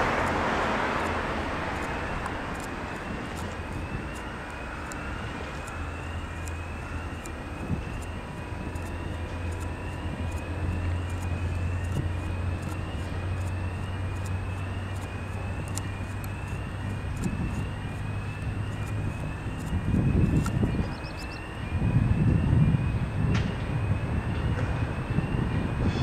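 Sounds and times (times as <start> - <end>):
diesel train engine drone: 0.0 - 26.0
high chirp: 20.4 - 21.5.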